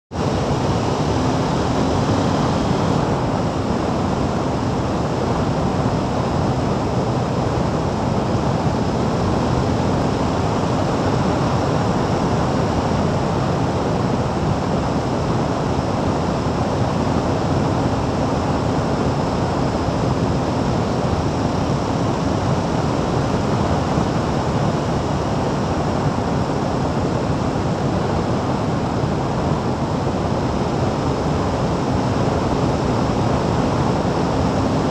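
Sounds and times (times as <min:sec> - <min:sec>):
motorcycle road noise: 0:00.2 - 0:34.9.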